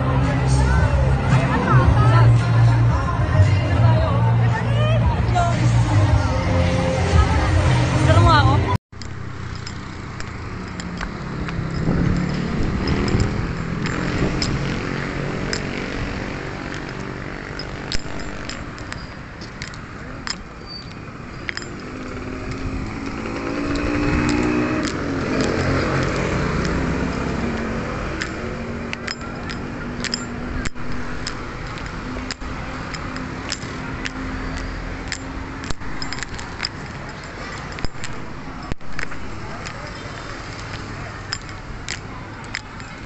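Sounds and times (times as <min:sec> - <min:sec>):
steady engine hum: 0:04.2 - 0:43.0
motorcycle engines running: 0:07.1 - 0:43.0
motorcycle passing close: 0:09.4 - 0:19.1, 0:21.5 - 0:38.3.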